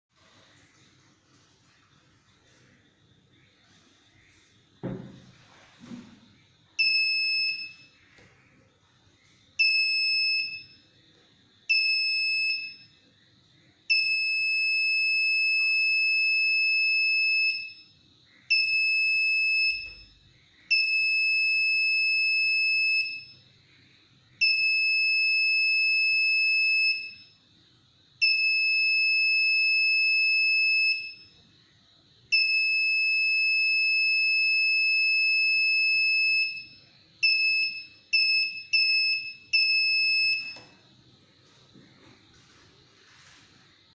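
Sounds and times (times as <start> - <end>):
high-pitched buzzer beeps: 6.8 - 8.0, 9.6 - 10.8, 11.7 - 13.0, 13.9 - 23.4, 24.4 - 27.4, 28.2 - 31.4, 32.3 - 40.8.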